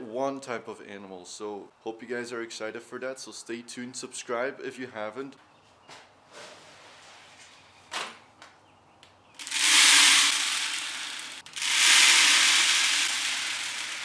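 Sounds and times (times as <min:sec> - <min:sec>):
grain pouring into feeder: 0:09.4 - 0:14.0.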